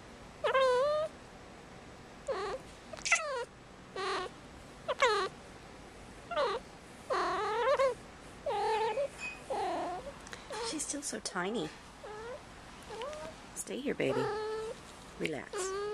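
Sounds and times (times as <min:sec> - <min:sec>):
kitten meowing: 0:02.3 - 0:04.3, 0:06.3 - 0:10.7, 0:12.0 - 0:13.3, 0:14.1 - 0:14.8, 0:15.5 - 0:15.9.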